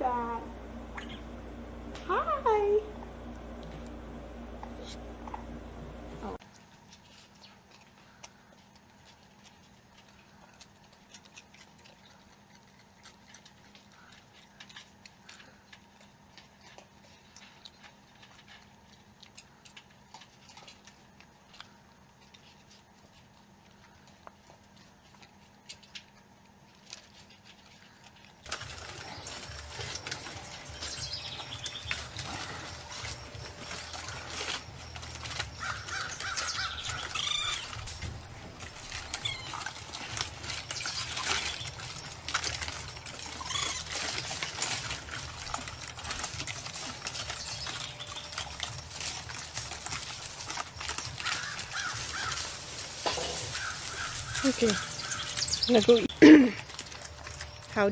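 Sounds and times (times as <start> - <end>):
animal calls rising and falling: 38.9 - 40.1, 43.2 - 44.4.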